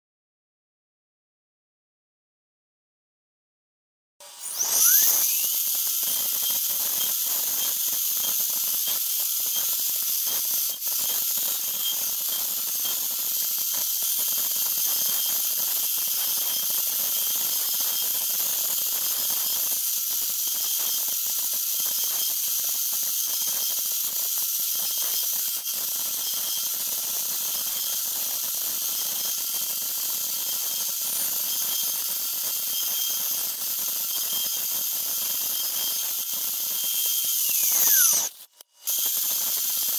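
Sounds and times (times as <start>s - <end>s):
router spindle high-pitched whine: 4.2s - 23.9s, 24.6s - 39.9s
hiss of cutting plastic: 4.2s - 39.9s.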